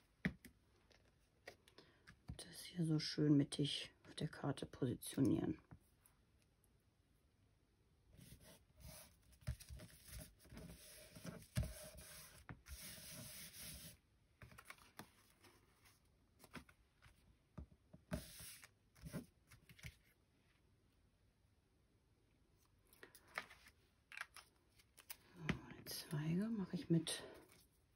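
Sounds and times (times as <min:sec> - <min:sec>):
paper rubbing and rustling: 0:08.2 - 0:16.7.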